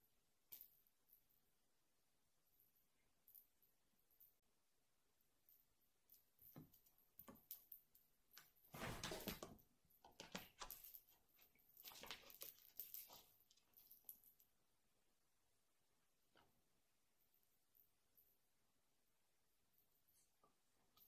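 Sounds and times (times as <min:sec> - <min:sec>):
cat paws scrambling on wooden floor: 0:08.4 - 0:14.2.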